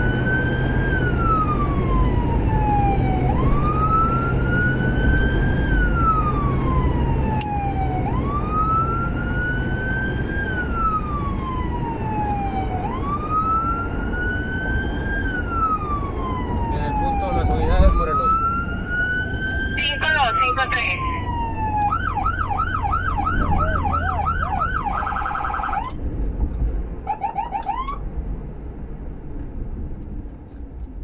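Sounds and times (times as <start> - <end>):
siren wailing: 0.0 - 26.0, 27.0 - 28.0
engine and road noise: 0.0 - 31.0.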